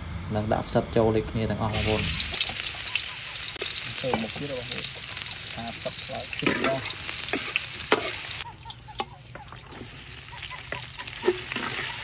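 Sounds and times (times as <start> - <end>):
garlic sizzling in hot oil: 1.7 - 12.0
metal spatula scraping wok: 6.4 - 8.4, 9.4 - 12.0.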